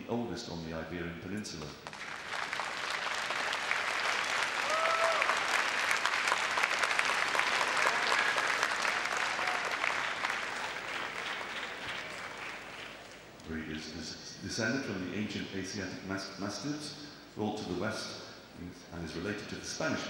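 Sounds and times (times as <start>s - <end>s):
audience applauding: 1.8s - 13.4s.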